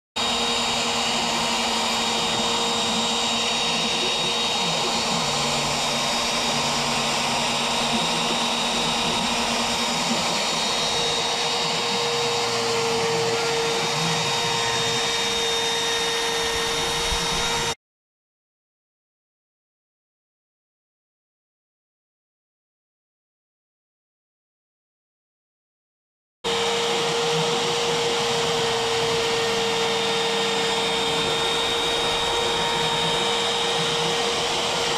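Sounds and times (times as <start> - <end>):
router spindle whining: 0.2 - 17.8, 26.5 - 34.9.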